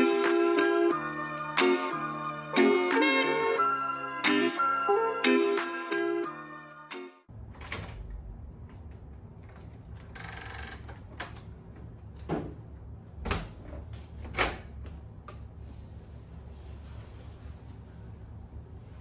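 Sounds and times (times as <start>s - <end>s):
low room hum: 7.3s - 19.0s.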